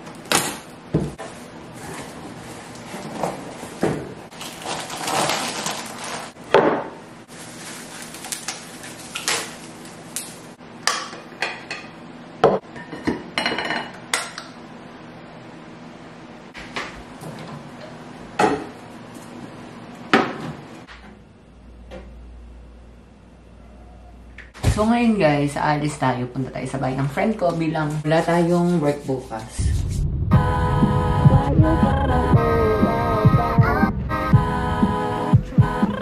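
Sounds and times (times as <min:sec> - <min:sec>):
low steady hum: 0:20.8 - 0:36.0.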